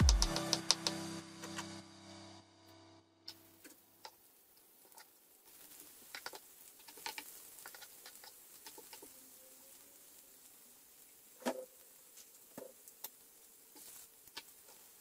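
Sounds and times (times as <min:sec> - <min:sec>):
oil popping and crackling: 0:03.3 - 0:15.0
onion sizzling in oil: 0:03.3 - 0:15.0.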